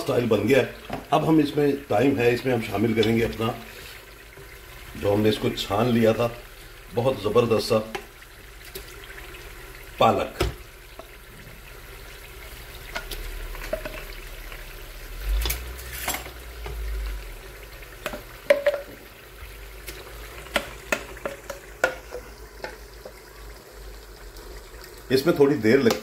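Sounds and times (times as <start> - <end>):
gravy sizzling: 0.0 - 26.0
jug knocking against pot: 18.0 - 19.0.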